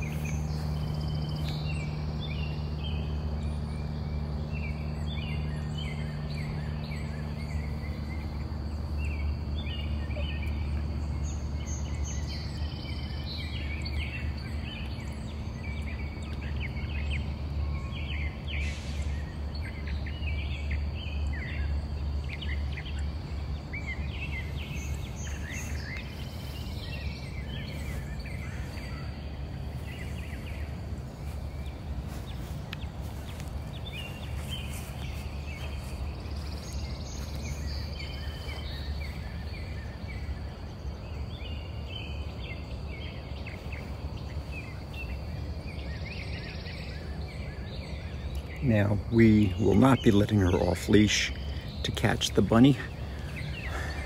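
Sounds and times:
small birds chirping: 0.0 - 54.0
steady low hum: 0.0 - 54.0.

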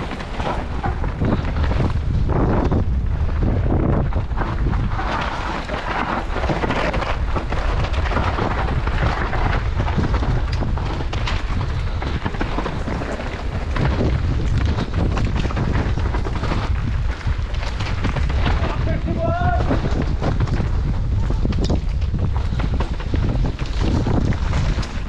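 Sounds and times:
bike rattling: 0.0 - 25.0
tyre noise on trail: 0.0 - 25.0
wind buffeting microphone: 0.0 - 25.0.

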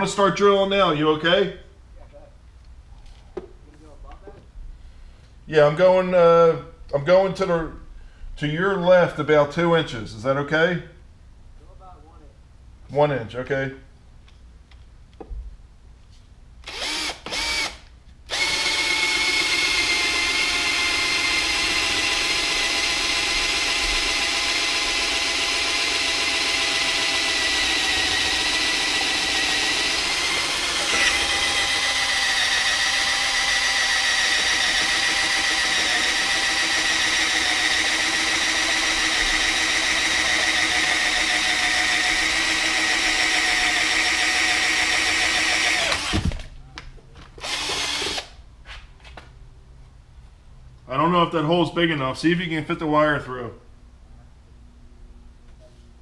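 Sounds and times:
electric drill whining: 16.6 - 46.5, 47.4 - 48.4.

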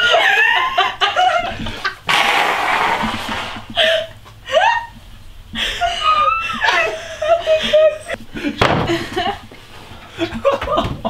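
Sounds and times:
women laughing and squealing: 0.0 - 2.0, 3.7 - 5.0, 5.6 - 9.4
hiss: 2.1 - 3.8.

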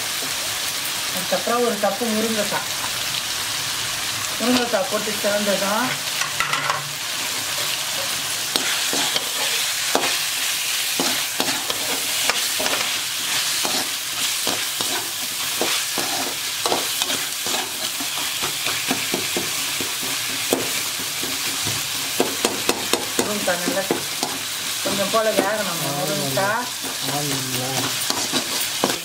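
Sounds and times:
masala sizzling in oil: 0.0 - 29.0.

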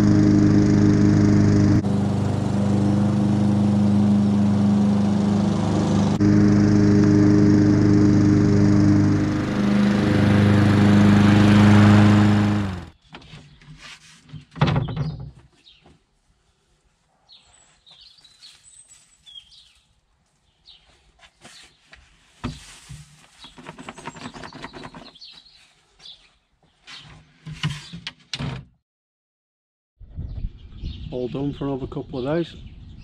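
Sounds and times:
lawn mower engine running: 0.0 - 13.0
birds chirping: 2.0 - 6.2.

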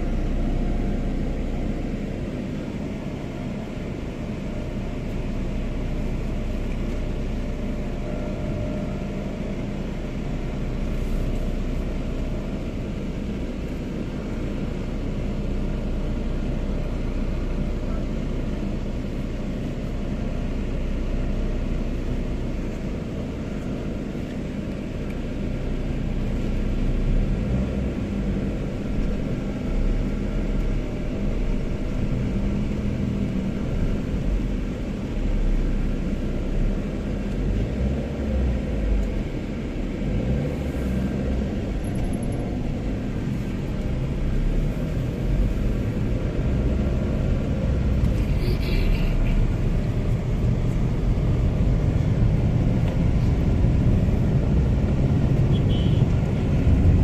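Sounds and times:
city traffic rumble: 0.0 - 57.0.

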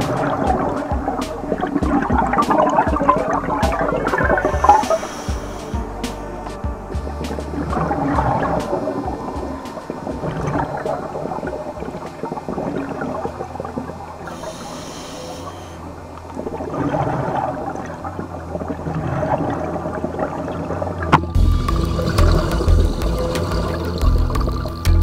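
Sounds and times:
bubbling exhales: 0.0 - 6.3, 7.3 - 24.8
regulator hissing inhale: 4.3 - 6.4, 14.2 - 16.0.

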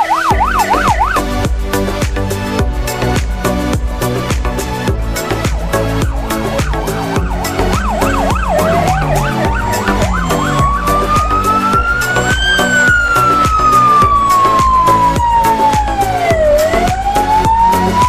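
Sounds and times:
electronic siren yelping and wailing: 0.0 - 1.2, 5.3 - 18.0
music with a steady beat: 0.0 - 18.0.

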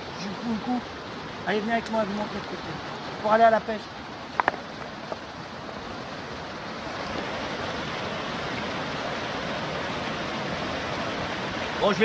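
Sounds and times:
river rushing over stones: 0.0 - 12.0.

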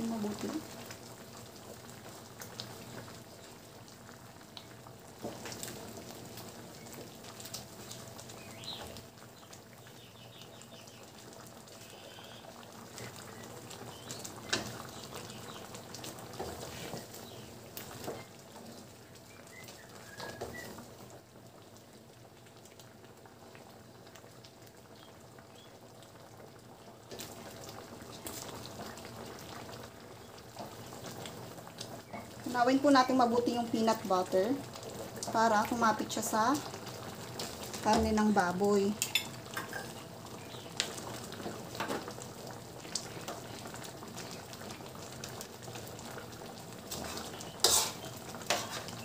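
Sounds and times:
stew bubbling in a wok: 0.0 - 49.0
wooden spatula scraping pan: 16.4 - 17.1, 46.9 - 49.0.

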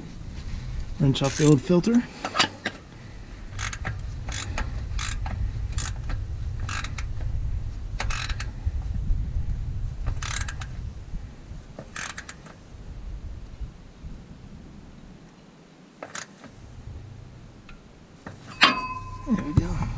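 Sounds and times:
steady low rumble: 0.0 - 15.4, 16.5 - 19.9
ratchet wrench clicking: 1.2 - 1.6, 3.5 - 7.2, 8.0 - 8.5, 10.1 - 10.7, 11.9 - 12.6.

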